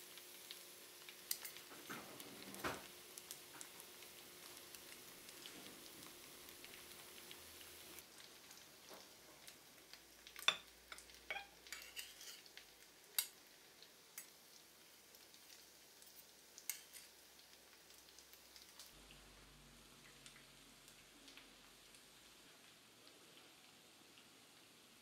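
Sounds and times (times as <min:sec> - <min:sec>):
metal cutlery clinking on plate: 0:10.4 - 0:12.5.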